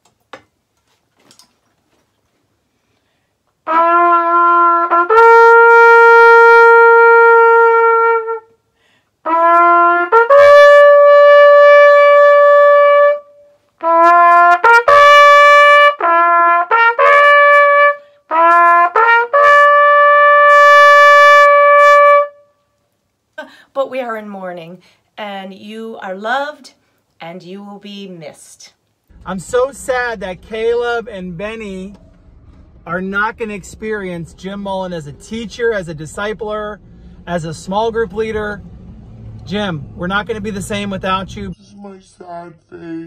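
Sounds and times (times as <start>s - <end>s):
solo trumpet slow melody: 3.6s - 22.8s, 29.1s - 41.6s.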